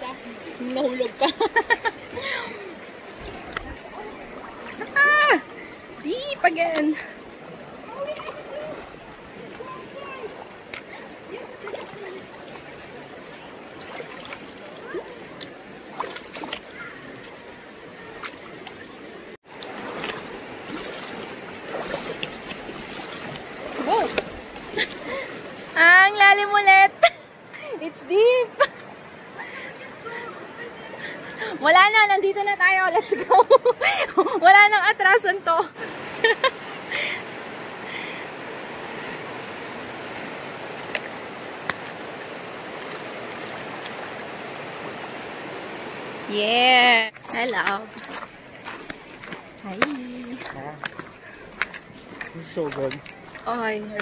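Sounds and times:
people wading and splashing: 0:00.0 - 0:54.0
shallow river rushing: 0:00.0 - 0:54.0.

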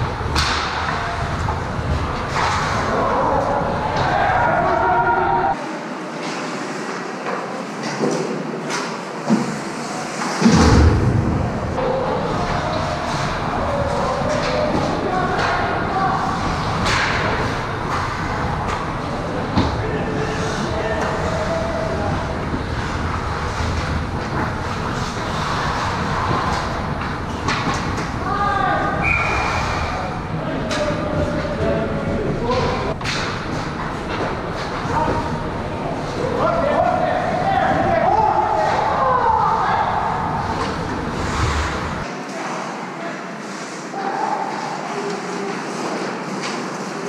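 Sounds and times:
rumbling rink din: 0:00.0 - 0:47.0
hockey sticks and puck clacking: 0:00.2 - 0:03.4, 0:11.8 - 0:19.8, 0:20.4 - 0:28.2, 0:32.4 - 0:35.4, 0:44.5 - 0:47.0
heavy thump: 0:10.4 - 0:11.8
skates scraping on ice: 0:20.2 - 0:28.0.

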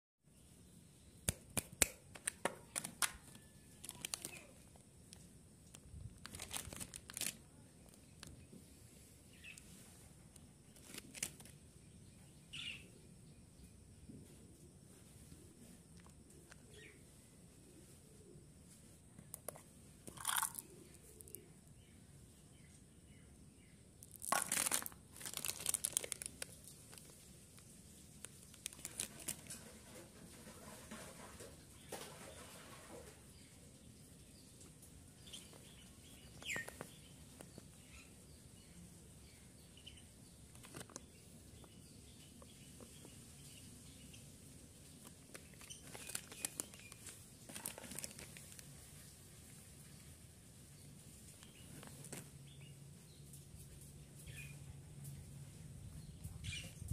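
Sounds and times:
plastic wrappers crinkling: 0:02.1 - 0:04.8, 0:05.7 - 0:08.4, 0:10.7 - 0:11.6, 0:19.4 - 0:20.6, 0:24.0 - 0:29.7, 0:40.5 - 0:41.0, 0:45.0 - 0:48.9.

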